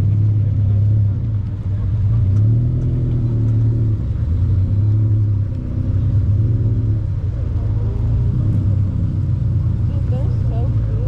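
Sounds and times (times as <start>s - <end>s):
car engine rumbling: 0.0s - 11.0s.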